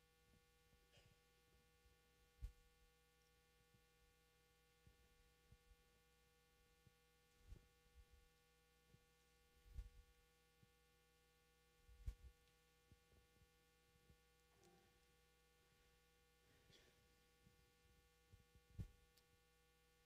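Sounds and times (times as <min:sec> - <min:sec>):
faint electrical hum: 0:00.0 - 0:20.0
soft low thumps: 0:08.9 - 0:10.7.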